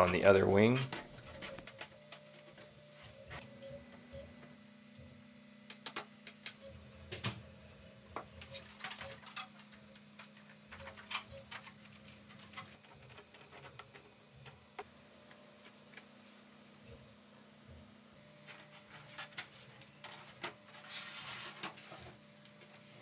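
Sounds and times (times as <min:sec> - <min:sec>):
plastic parts clicking and tapping: 0:08.4 - 0:14.9.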